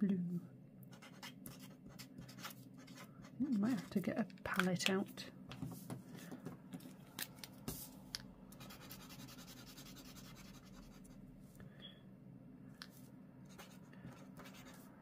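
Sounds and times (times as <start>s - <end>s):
marker scratching on card: 0.9s - 3.1s, 8.6s - 11.0s, 13.5s - 14.9s.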